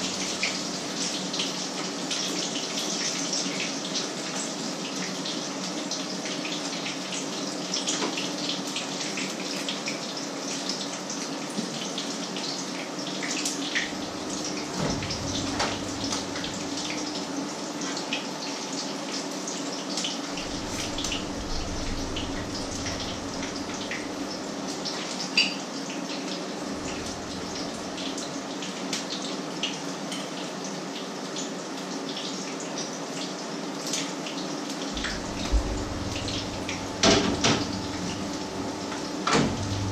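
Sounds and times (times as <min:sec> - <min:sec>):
low steady hum: 0:13.8 - 0:17.2, 0:20.3 - 0:25.1, 0:26.6 - 0:28.4, 0:35.0 - 0:39.9.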